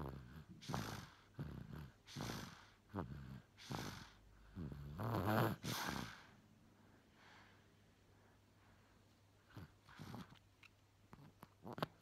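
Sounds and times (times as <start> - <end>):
baby snoring: 0.0 - 6.3, 9.5 - 10.4, 11.2 - 12.0.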